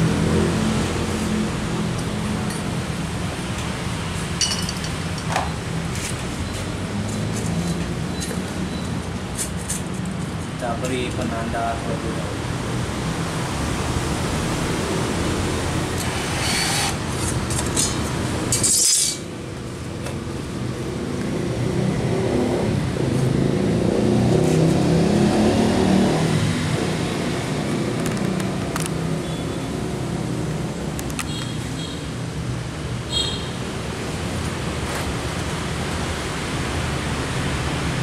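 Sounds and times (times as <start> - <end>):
band saw cutting steel tube: 15.9 - 19.3.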